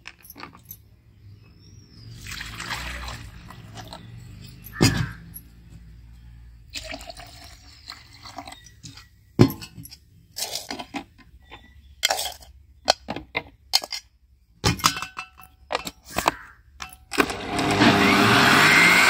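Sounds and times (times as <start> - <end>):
metal spoon clinking: 11.5 - 12.5, 14.8 - 17.1.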